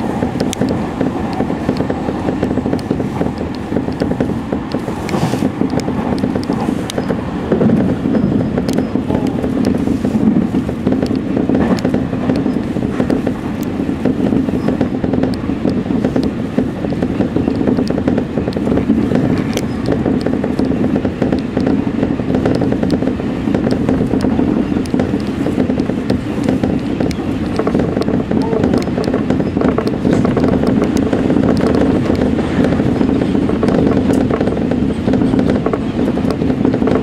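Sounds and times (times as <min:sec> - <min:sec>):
train wheels rumbling on rails: 0:00.0 - 0:37.0
clicks: 0:00.3 - 0:09.8.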